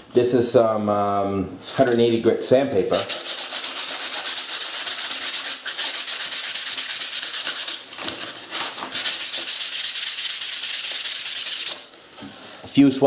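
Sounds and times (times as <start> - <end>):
sandpaper rubbing foam board: 2.9 - 11.8.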